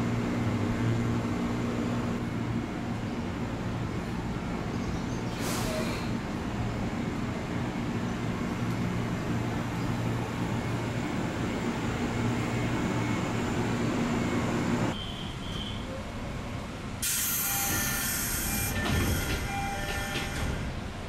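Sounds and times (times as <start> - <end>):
electric train humming: 6.1 - 15.0.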